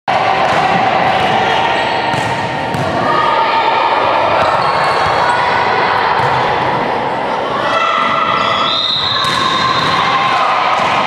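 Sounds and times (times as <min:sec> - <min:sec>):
court noise: 0:00.1 - 0:11.0
volleyball hit: 0:00.3 - 0:01.5, 0:02.1 - 0:03.1.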